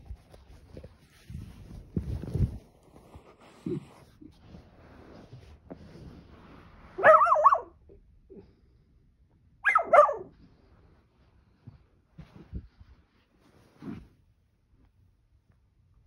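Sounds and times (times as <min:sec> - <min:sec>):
faint rustling: 0:00.0 - 0:07.4
dog barking: 0:07.0 - 0:07.8, 0:09.6 - 0:10.4.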